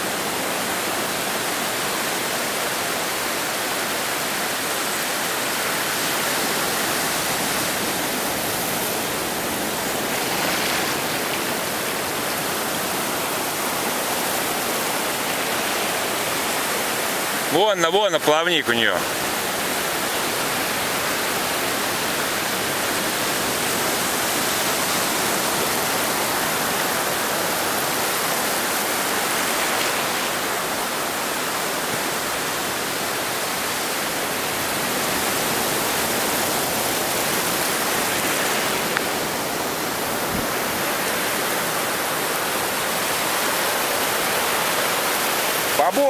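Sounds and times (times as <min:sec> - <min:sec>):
surf washing onto beach: 0:00.0 - 0:46.0.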